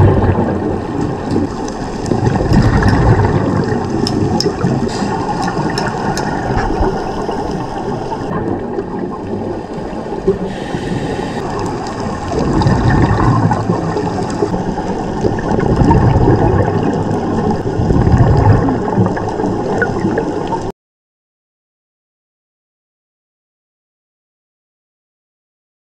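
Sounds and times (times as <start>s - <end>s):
underwater air bubbles: 0.0s - 20.7s.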